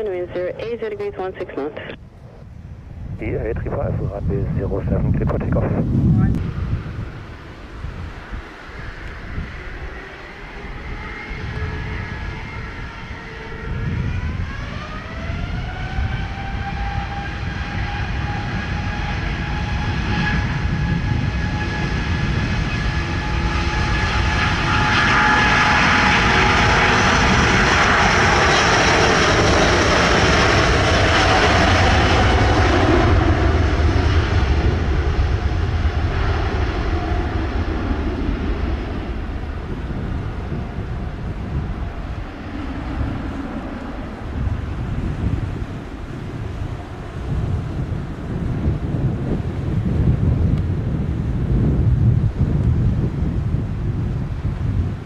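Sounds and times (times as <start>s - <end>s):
jet engines spooling up with whine: 0.0s - 55.0s
jet roar of airliner taking off: 0.0s - 55.0s.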